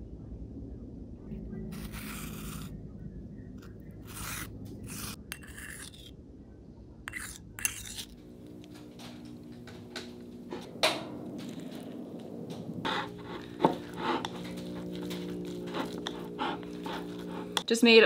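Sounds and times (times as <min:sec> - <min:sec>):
spoons scraping wet clay in bowls: 0:01.8 - 0:02.7, 0:03.6 - 0:06.1, 0:07.1 - 0:10.7, 0:11.4 - 0:17.8.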